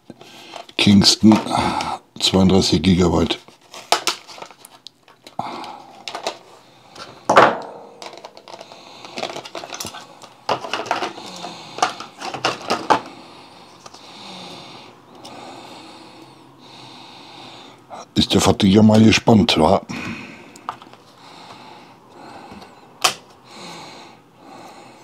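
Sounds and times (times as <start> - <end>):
plastic blister pack cracking: 3.6 - 6.4, 7.9 - 13.1.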